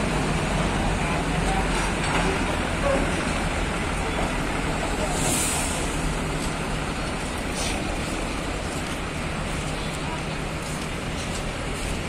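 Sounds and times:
diesel engine running: 0.0 - 12.0
short hiss: 5.1 - 6.1.

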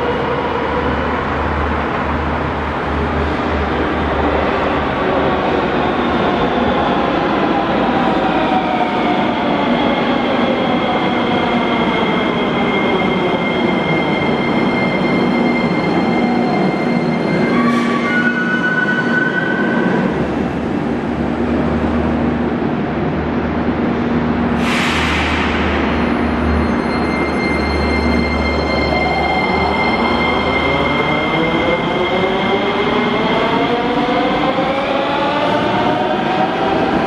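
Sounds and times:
sharp air hiss: 24.6 - 25.7.

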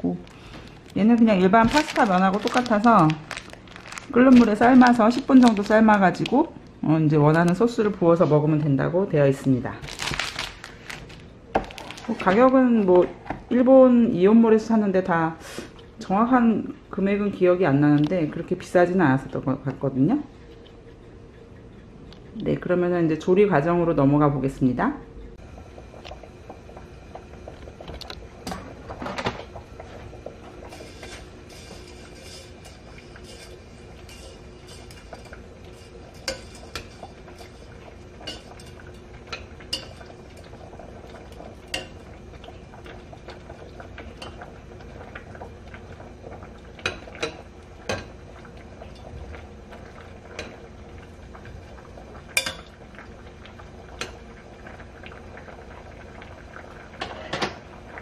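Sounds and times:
water boiling in a pot: 0.0 - 58.0
tongs clinking against pot: 32.2 - 37.6, 52.4 - 52.7.

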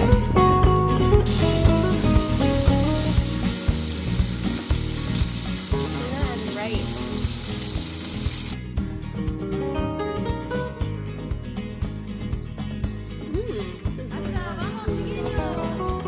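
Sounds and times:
background music: 0.0 - 16.0
fish sizzling in a skillet: 1.3 - 8.6.

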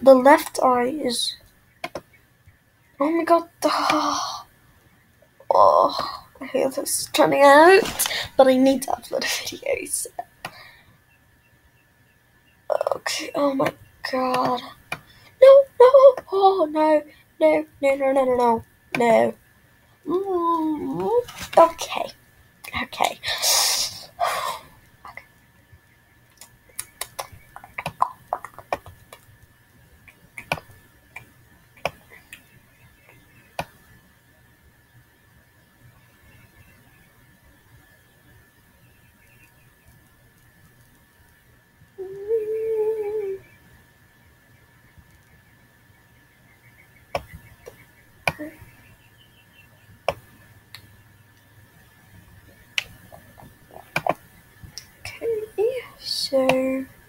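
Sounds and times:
faint high-pitched whine: 0.0 - 57.0
computer mouse clicks: 1.8 - 2.1
faint steady high tone: 42.0 - 50.2.

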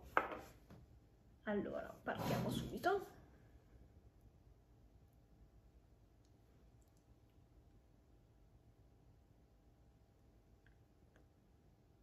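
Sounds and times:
faint lip clicks: 6.2 - 7.4.

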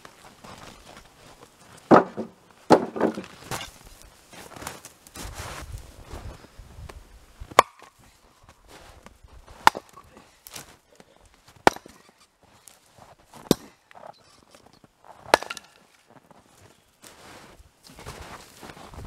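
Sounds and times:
axe splitting wood cracks: 1.9 - 3.8, 7.5 - 7.9, 9.6 - 10.7, 11.6 - 12.2, 13.4 - 14.0, 15.2 - 16.0.

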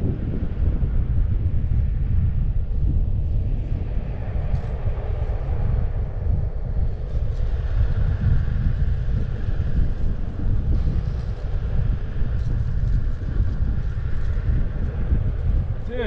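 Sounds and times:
wind rushing over microphone: 0.0 - 16.0
wheels rolling on asphalt: 3.2 - 15.9.

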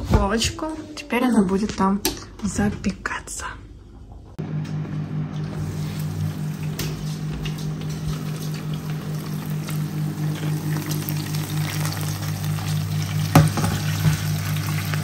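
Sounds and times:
kitchen fan humming: 0.0 - 15.0.

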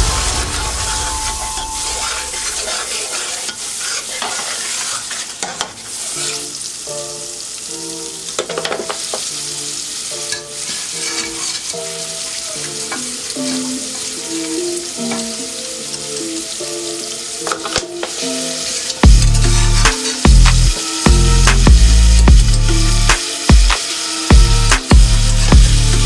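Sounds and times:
paste sizzling in a pot: 0.0 - 26.0
metal ladle stirring: 10.9 - 11.6.

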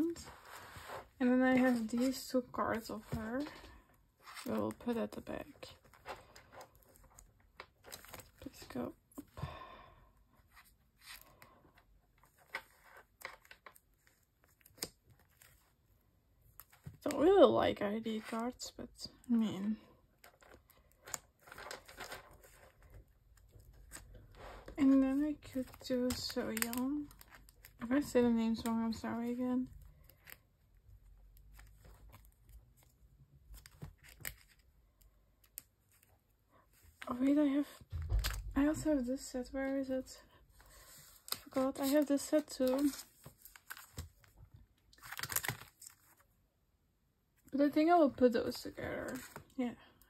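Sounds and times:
plastic sleeves clicking and rustling: 0.0 - 8.7, 10.6 - 15.7, 20.2 - 30.5, 31.2 - 36.1, 40.6 - 46.3.

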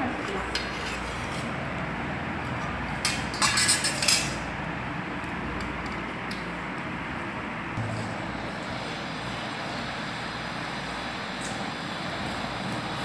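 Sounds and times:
steady background noise: 0.0 - 13.0
metal clinking and scraping on plate: 3.0 - 4.4.

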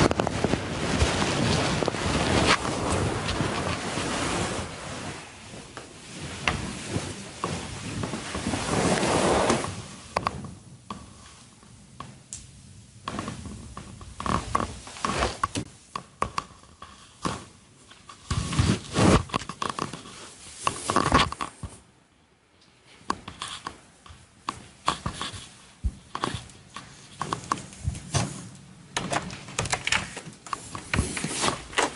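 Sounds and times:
fabric rustling: 0.0 - 10.5, 13.0 - 15.8, 16.6 - 21.9.

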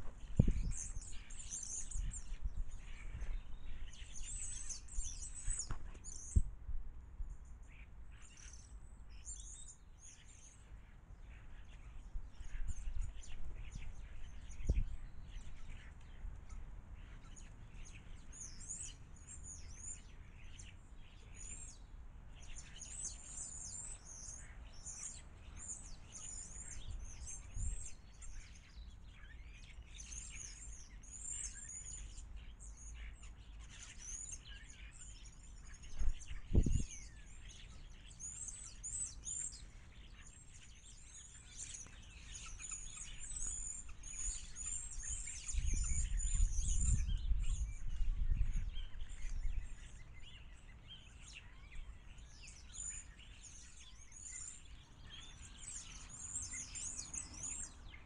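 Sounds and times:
small songbirds chirping: 0.0 - 58.0.

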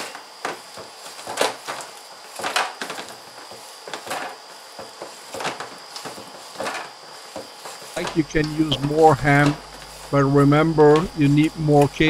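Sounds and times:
hand mixing meat in metal bowl: 7.9 - 12.0.

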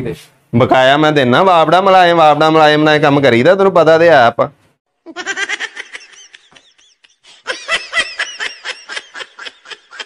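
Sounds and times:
high-pitched giggling: 5.0 - 10.0
quick rhythmic laughs: 5.6 - 10.0.

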